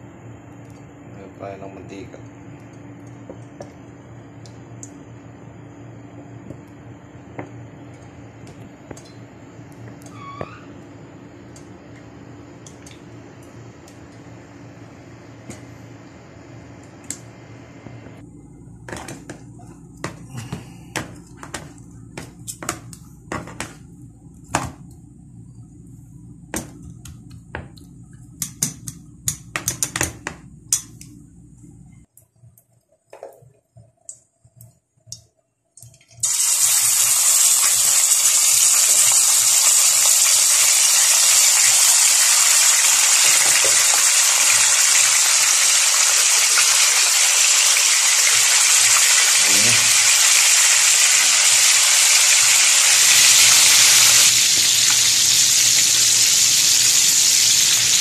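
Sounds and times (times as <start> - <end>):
fish sizzling in hot oil: 36.2 - 58.0
oil popping and crackling: 36.2 - 58.0.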